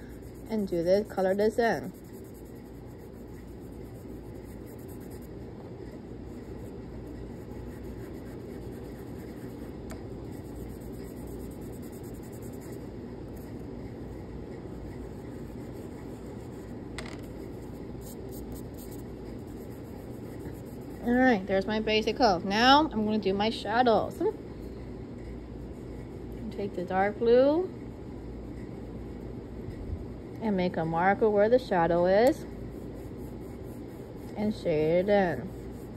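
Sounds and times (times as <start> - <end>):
chalk pastel rubbing on paper: 0.0 - 13.6, 14.5 - 16.8, 17.4 - 21.4, 32.6 - 35.9.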